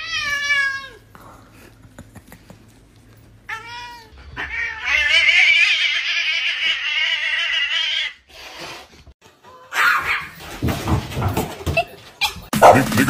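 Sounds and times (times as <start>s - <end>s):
cat yowling: 3.5s - 8.2s.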